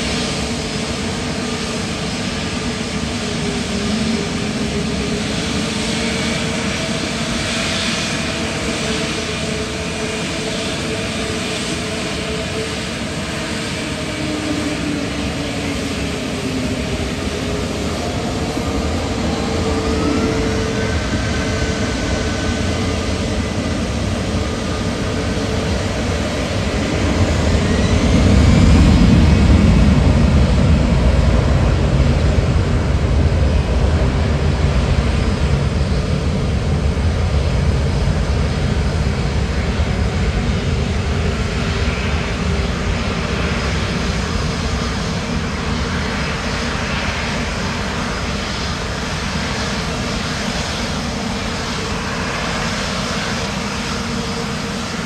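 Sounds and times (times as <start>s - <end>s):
airliner engines rumbling: 0.0s - 55.0s
engine whine rising in pitch: 2.1s - 34.3s.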